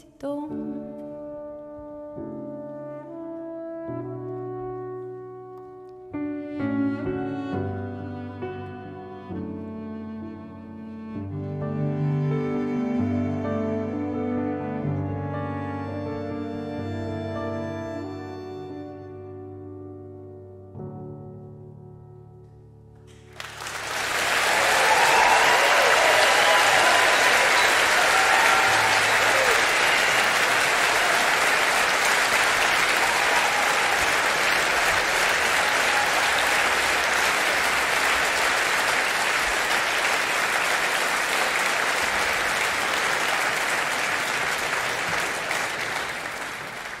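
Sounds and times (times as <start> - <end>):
audience applauding: 23.2 - 47.0.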